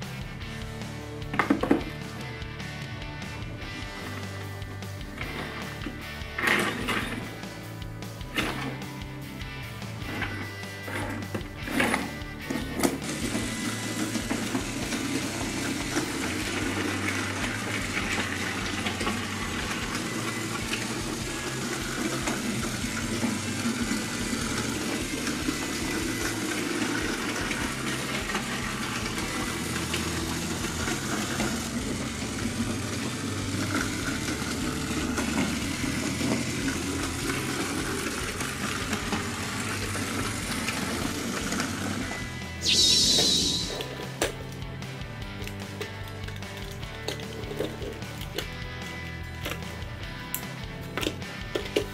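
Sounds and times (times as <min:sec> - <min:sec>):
wheels rolling on wooden track: 0:05.0 - 0:07.5, 0:10.0 - 0:42.4
toy train motor whir: 0:10.0 - 0:44.2.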